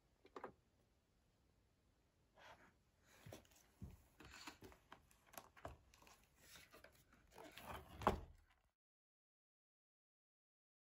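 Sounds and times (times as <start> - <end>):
book pages flipping and rustling: 3.2 - 8.4.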